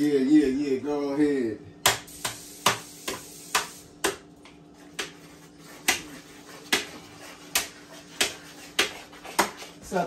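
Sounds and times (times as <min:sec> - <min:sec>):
sharp knocks of kitchen work: 0:01.8 - 0:09.7.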